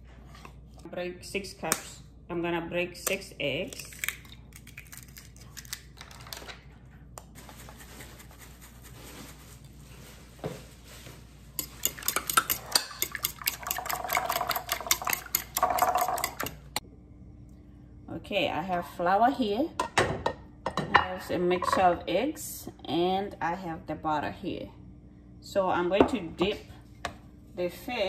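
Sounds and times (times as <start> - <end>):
fork beating eggs in glass dish: 11.6 - 16.6.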